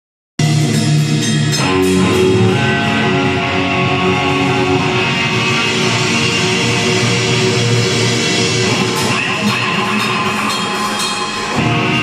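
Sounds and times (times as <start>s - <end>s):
cymbal hits: 0.4s - 3.8s
bass guitar: 0.4s - 12.0s
drum kit: 0.4s - 12.0s
electric guitar: 0.4s - 12.0s.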